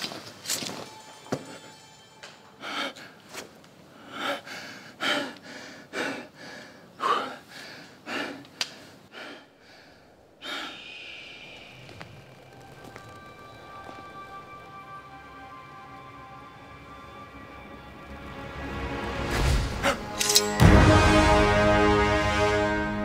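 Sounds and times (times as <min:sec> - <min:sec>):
man gasping and panting: 0:04.0 - 0:11.6
held musical tone: 0:10.9 - 0:23.0.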